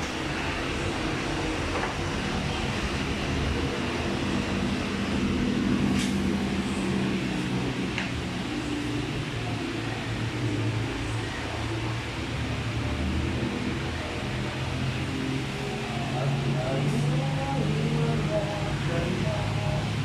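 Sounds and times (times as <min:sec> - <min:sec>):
traffic engine drone: 0:00.0 - 0:20.0.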